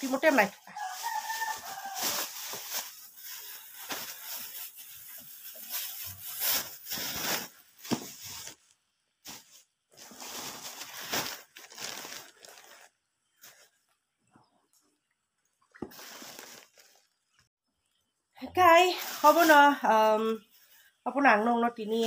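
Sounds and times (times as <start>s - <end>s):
plastic bags rustling: 0.0s - 13.9s, 15.8s - 17.4s, 18.7s - 20.8s.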